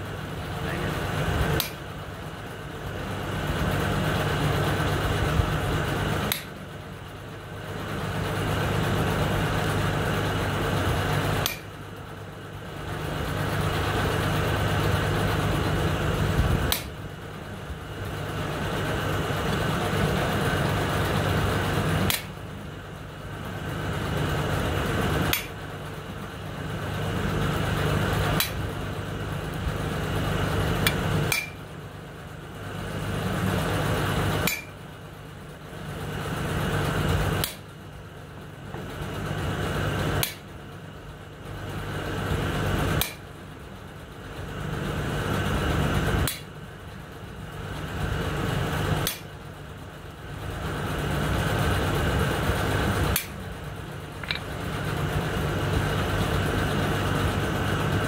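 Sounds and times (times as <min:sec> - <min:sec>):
mechanical hum of forging tool: 0:01.0 - 0:02.2, 0:06.2 - 0:07.2, 0:09.9 - 0:12.3, 0:13.4 - 0:17.8, 0:20.9 - 0:58.0
sharp click: 0:40.2 - 0:40.4.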